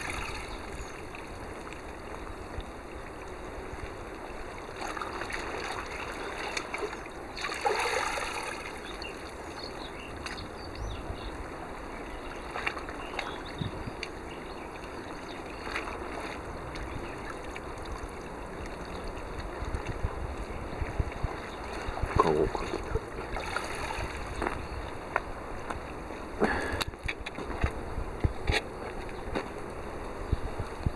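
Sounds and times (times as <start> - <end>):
small splashes: 0.0 - 10.5, 12.2 - 24.6
sea water lapping: 0.0 - 27.2.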